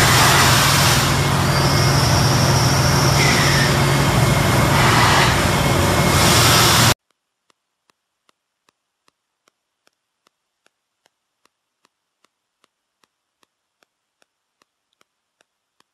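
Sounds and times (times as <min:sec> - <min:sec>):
factory machinery hiss and hum: 0:00.0 - 0:07.0
faint regular ticks: 0:07.0 - 0:15.9.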